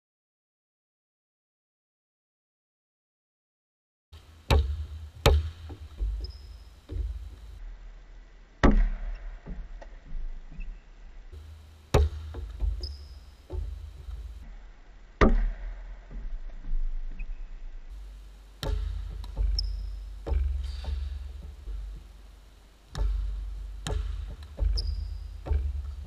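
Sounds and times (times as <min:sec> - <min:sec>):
basketball bouncing on gym floor: 0:04.2 - 0:07.6, 0:08.6 - 0:10.7, 0:11.3 - 0:14.4, 0:15.2 - 0:17.3, 0:17.9 - 0:26.0
sneaker squeaks on court: 0:04.5 - 0:07.4, 0:11.4 - 0:14.4, 0:18.6 - 0:22.0, 0:22.9 - 0:26.0.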